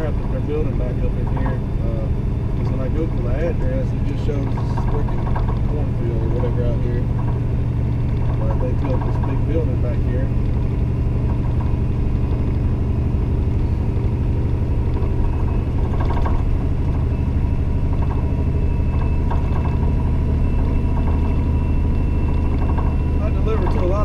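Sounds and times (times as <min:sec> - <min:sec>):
truck diesel engine drone: 0:00.0 - 0:24.0.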